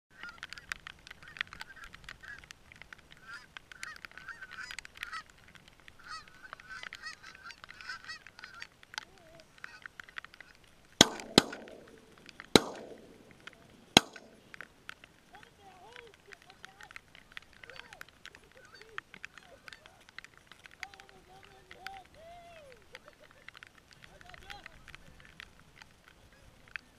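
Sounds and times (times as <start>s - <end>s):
geese honking: 6.0s - 8.8s
shotgun shots echoing: 11.0s - 14.6s.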